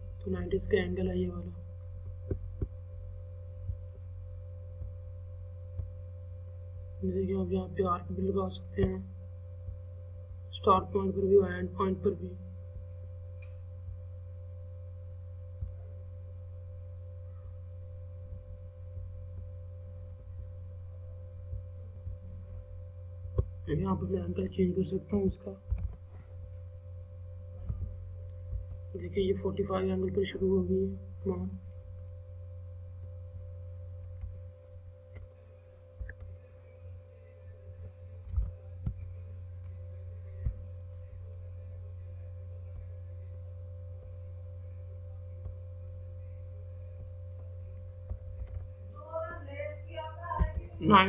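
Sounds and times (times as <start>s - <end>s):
low electrical hum: 0.0s - 51.0s.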